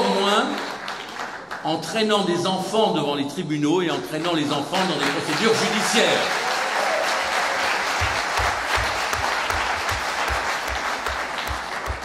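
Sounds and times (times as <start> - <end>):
audience applauding: 0.0 - 1.9, 3.9 - 12.0
nearby claps as low thuds: 7.7 - 12.0.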